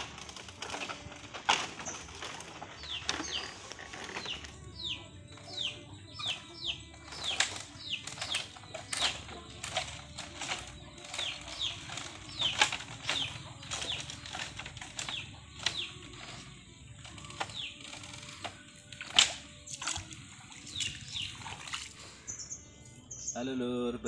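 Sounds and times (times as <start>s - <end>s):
footsteps on bamboo footbridge: 0.0s - 16.5s
bamboo slats creaking: 0.0s - 22.2s.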